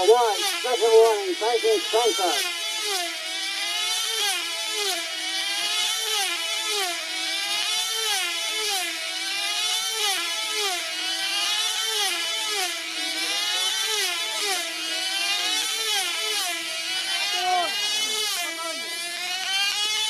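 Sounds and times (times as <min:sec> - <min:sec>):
model aircraft engines swooping past: 0:00.0 - 0:20.0.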